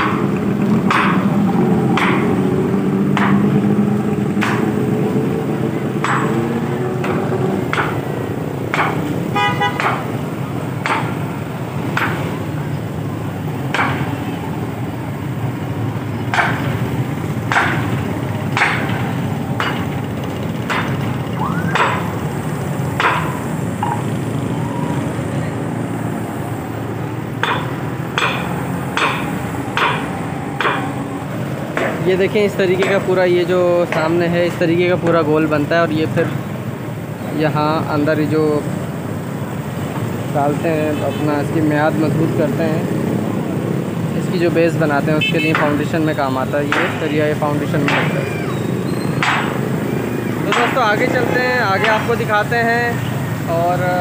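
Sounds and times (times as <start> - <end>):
hammer blows: 0.0 - 25.2, 26.9 - 36.5, 45.2 - 52.4
metallic clanks of steel bar: 6.0 - 6.4, 27.4 - 30.9.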